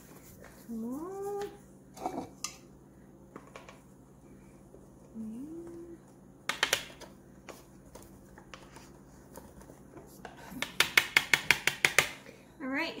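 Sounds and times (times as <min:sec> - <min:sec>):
spoons tapping mixing bowl: 0:10.6 - 0:12.2.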